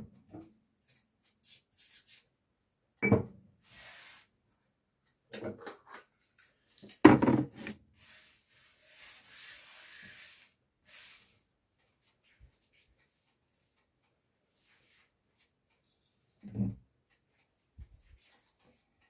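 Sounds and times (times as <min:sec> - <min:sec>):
object knocked down on counter: 0:07.0 - 0:07.5.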